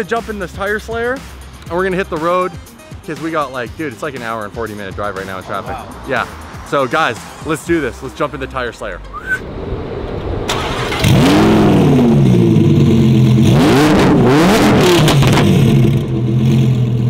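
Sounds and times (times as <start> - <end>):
car engine revving and idling: 9.7 - 17.0
engine starter cranking: 10.5 - 11.5.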